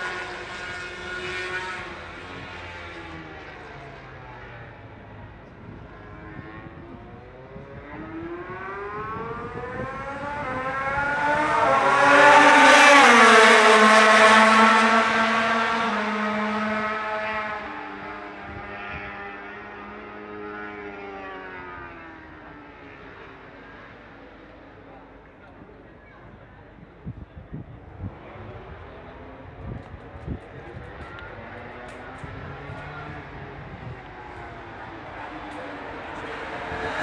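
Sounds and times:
racing motorcycle passing at high revs: 0.0 - 4.8, 5.9 - 24.0, 28.0 - 37.0.

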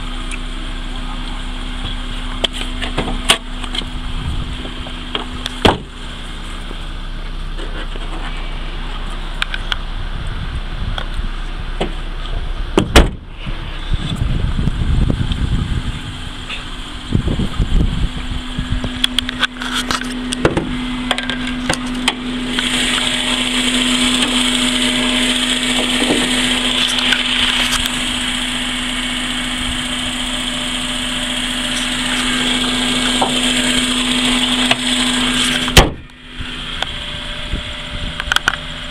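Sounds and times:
car engine idling: 0.0 - 38.9
car hood slamming shut: 5.1 - 6.0, 12.8 - 13.2, 35.7 - 36.1.

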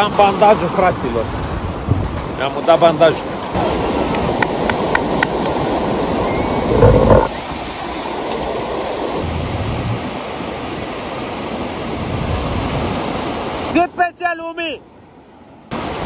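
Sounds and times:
ocean surf breaking: 0.0 - 16.0.

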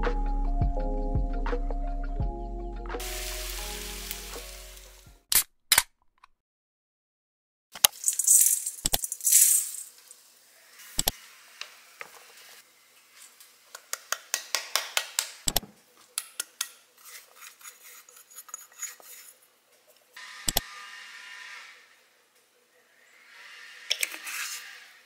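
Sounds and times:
hiss of pouring flour: 3.0 - 5.0.

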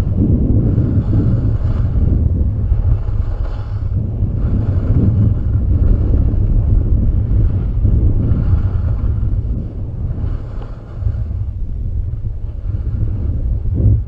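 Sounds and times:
wind buffeting microphone: 0.0 - 14.0
skis hissing on snow: 2.8 - 6.3.

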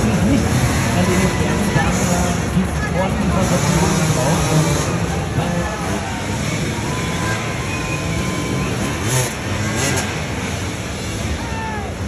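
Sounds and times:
crowd talking and calling out: 0.0 - 12.0
dirt bike engines revving: 0.0 - 12.0.

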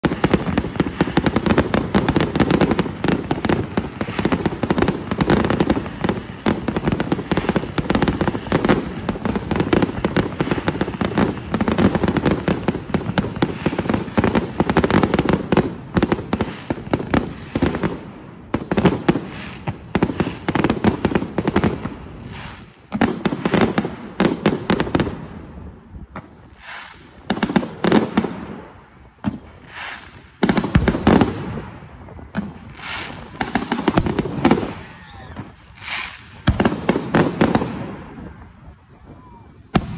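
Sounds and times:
fireworks shells bursting: 32.3 - 37.9.

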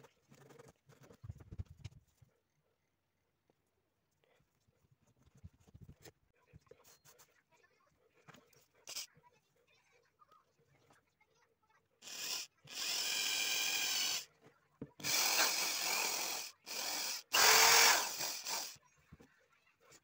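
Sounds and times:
electric drill boring into cork: 12.0 - 14.2, 15.0 - 18.8.

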